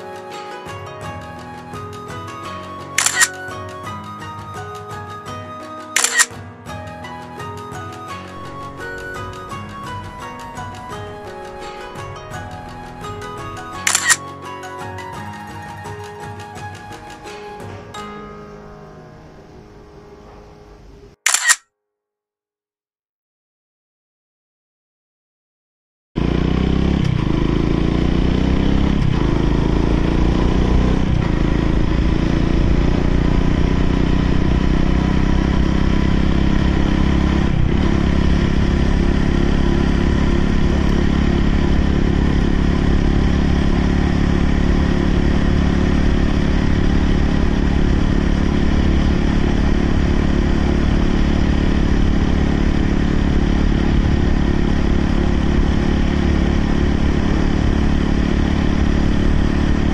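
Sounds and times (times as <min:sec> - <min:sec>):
motorcycle engine accelerating: 0:26.2 - 0:59.9.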